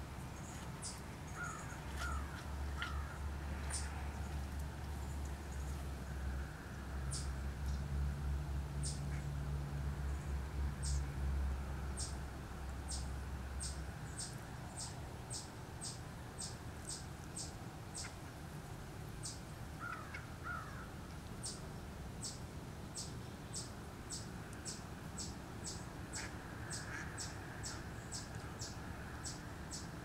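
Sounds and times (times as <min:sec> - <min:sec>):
faint lower bird calls: 0:00.4 - 0:04.0, 0:19.2 - 0:21.6.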